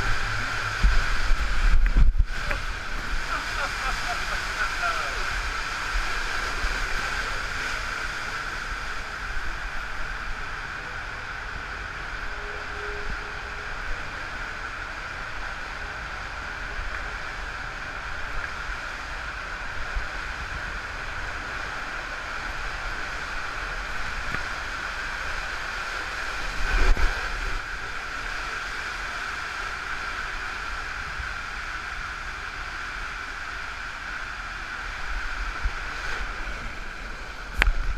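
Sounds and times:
water rushing through a tube: 0.0 - 10.3.

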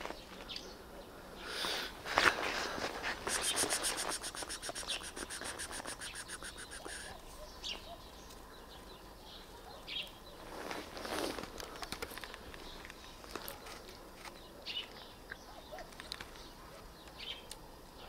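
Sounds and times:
small bird trilling and chirping: 3.3 - 8.2.

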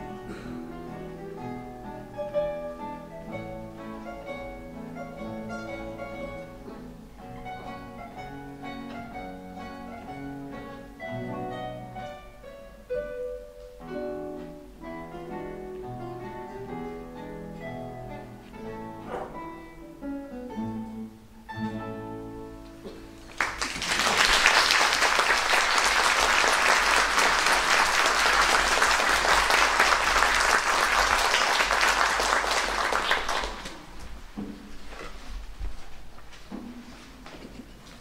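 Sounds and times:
classical guitars playing: 0.0 - 23.4
audience applause: 23.3 - 34.0.

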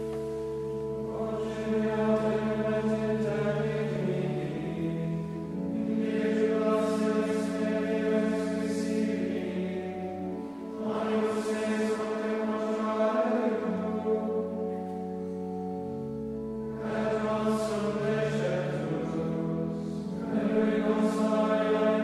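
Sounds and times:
men's choir chanting in unison: 5.8 - 10.0, 10.8 - 14.3, 16.8 - 22.0.

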